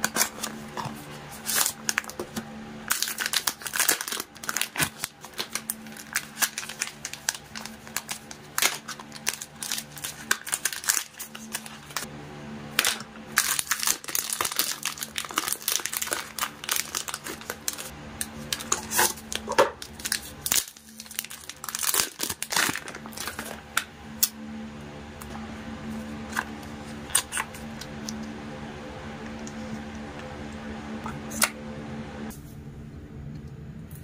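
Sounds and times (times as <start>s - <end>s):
plastic film crinkling: 0.0s - 12.1s, 12.8s - 23.8s.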